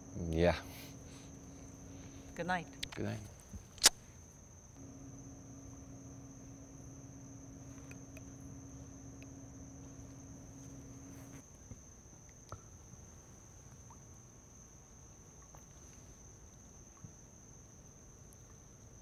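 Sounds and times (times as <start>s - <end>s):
low hum: 0.0s - 11.5s
crickets trilling: 0.0s - 19.0s
soft clicks: 6.2s - 11.4s.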